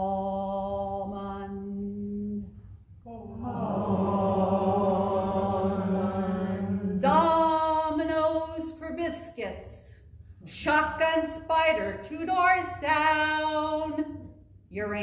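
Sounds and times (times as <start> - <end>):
group of voices singing: 3.1 - 7.4.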